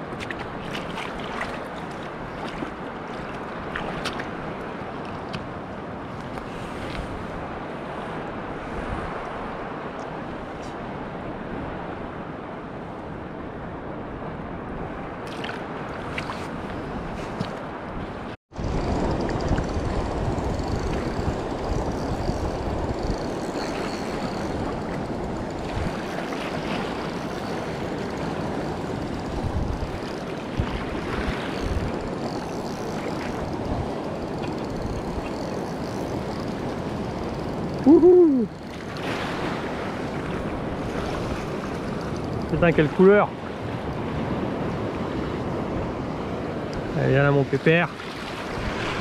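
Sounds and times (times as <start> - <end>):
sea water sloshing: 0.0 - 5.4, 18.8 - 37.7
wind buffeting microphone: 13.2 - 47.0.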